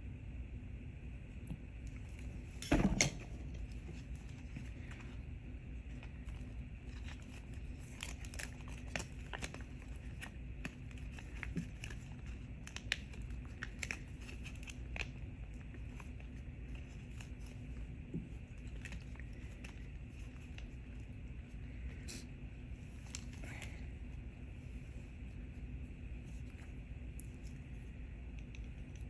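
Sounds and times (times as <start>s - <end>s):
steady low hum: 0.0s - 29.0s
plastic sleeve crinkling: 3.6s - 22.2s.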